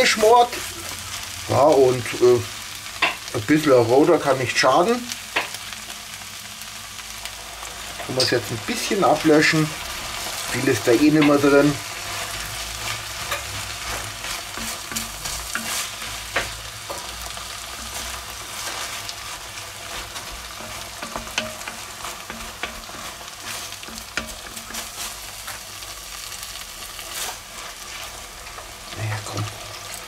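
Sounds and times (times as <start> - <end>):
vegetables sizzling in a pot: 0.0 - 30.0
wooden spoon scraping a pot: 11.1 - 26.1, 26.9 - 30.0.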